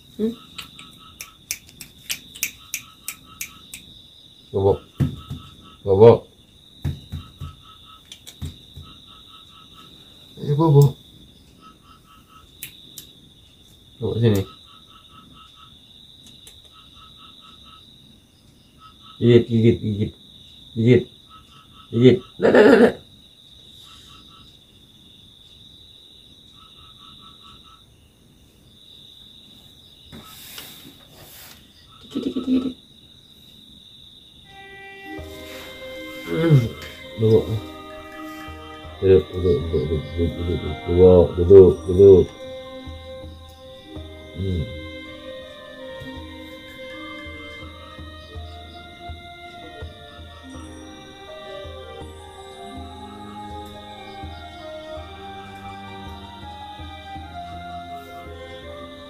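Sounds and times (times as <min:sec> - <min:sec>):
crickets trilling: 0:00.0 - 0:59.0
rhythmic insect chirping: 0:00.0 - 0:59.0
soft knocks: 0:04.9 - 0:05.6, 0:06.8 - 0:07.6, 0:08.4 - 0:09.0
rustle: 0:29.5 - 0:33.7.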